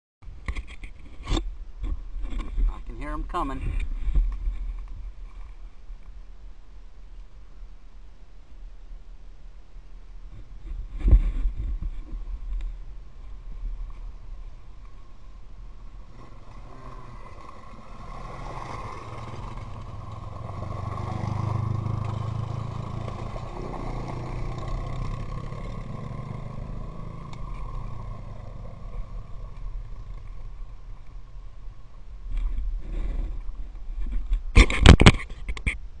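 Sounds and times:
quad bike engines rumbling: 0:10.4 - 0:35.9.

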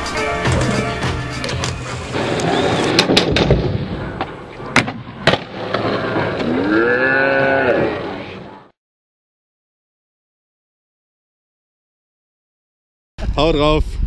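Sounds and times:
skateboard rolling on asphalt: 0:00.5 - 0:06.7.

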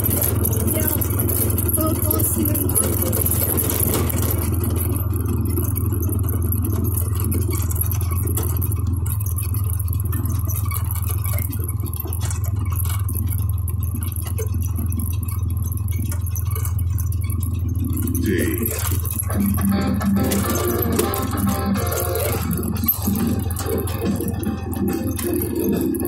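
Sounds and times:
atv engine running: 0:00.0 - 0:26.0
knocks and rattles: 0:00.0 - 0:26.0.

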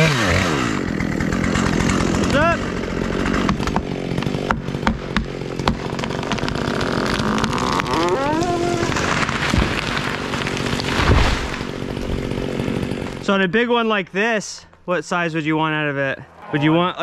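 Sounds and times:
tree cracking and snapping: 0:00.0 - 0:13.3
chainsaw idling: 0:00.0 - 0:13.4
person shouting: 0:07.9 - 0:09.1
heavy thud of tree landing: 0:08.9 - 0:12.4.

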